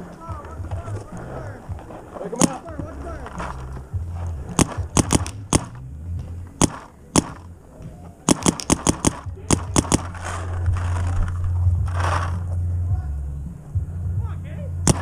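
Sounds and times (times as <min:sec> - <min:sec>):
paintball markers firing: 0:02.3 - 0:02.7, 0:04.5 - 0:05.8, 0:06.6 - 0:12.4.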